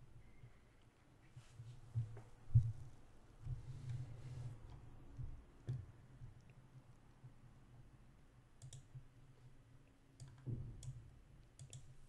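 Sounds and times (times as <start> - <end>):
faint room hum: 0.0 - 12.0
computer mouse clicks: 5.6 - 6.6, 8.6 - 9.0, 10.2 - 12.0.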